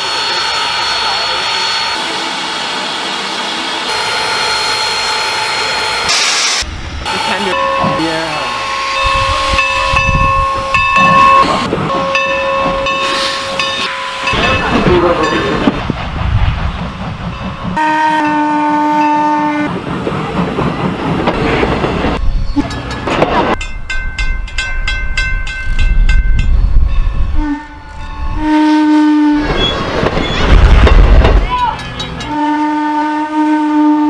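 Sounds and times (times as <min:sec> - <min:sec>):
steam locomotive whistle: 0:03.9 - 0:14.4, 0:17.8 - 0:19.7, 0:27.3 - 0:29.7, 0:32.2 - 0:34.0
train wheels clicking over rail joints: 0:19.6 - 0:26.6, 0:29.4 - 0:32.3.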